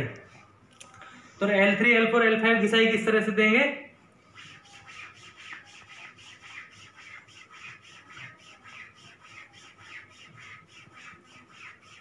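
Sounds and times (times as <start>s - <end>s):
hand rubbing on cloth: 4.3s - 12.0s.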